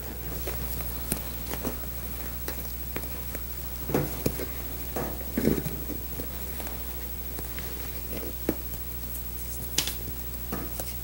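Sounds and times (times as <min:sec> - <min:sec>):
cushion rustles and scrapes: 0:00.0 - 0:08.6
low hum: 0:00.0 - 0:11.0.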